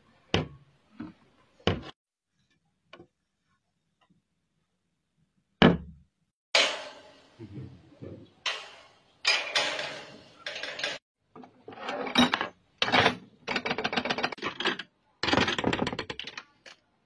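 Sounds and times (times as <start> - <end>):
metal latches clinking and rattling: 8.5 - 11.0.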